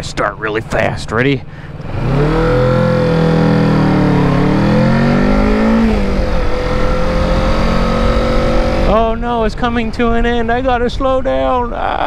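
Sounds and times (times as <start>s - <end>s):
motorcycle engine accelerating: 0.0s - 10.8s.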